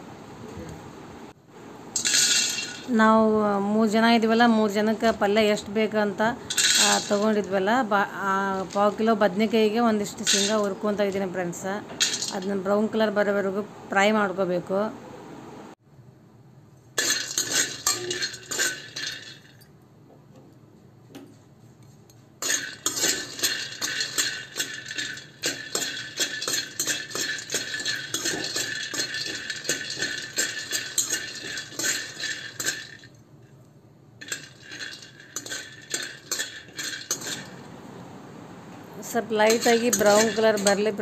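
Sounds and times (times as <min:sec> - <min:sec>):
spoon stirring peanuts in metal pan: 0:06.5 - 0:07.4, 0:17.0 - 0:19.5, 0:22.4 - 0:33.1, 0:34.2 - 0:37.6, 0:39.4 - 0:41.0.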